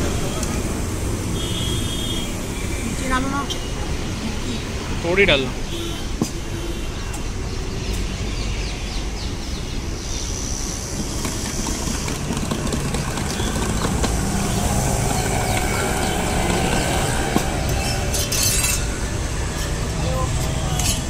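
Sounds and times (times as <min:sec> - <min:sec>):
traffic rumble: 0:00.0 - 0:21.0.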